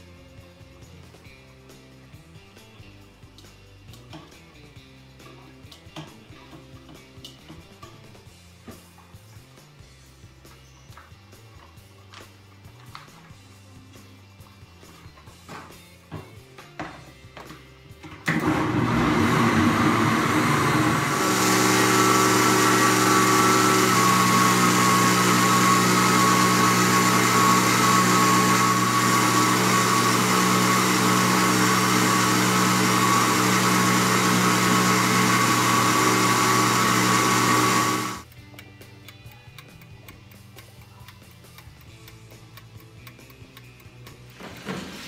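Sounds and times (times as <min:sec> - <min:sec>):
blender motor running: 0:18.3 - 0:38.3.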